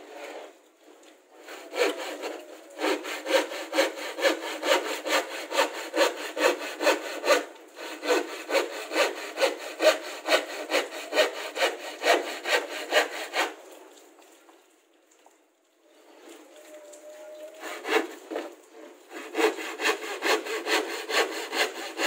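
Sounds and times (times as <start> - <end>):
handsaw cutting plywood: 1.4 - 13.6, 17.6 - 22.0.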